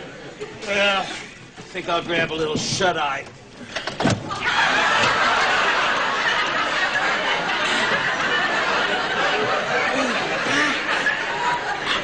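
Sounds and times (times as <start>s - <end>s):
audience laughing: 4.3s - 12.0s.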